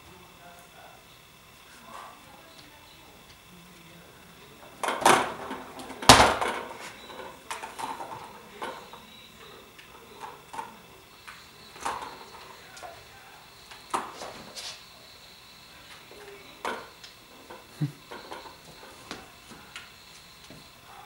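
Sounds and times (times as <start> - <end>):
cats knocking and clattering toys: 4.8 - 9.0.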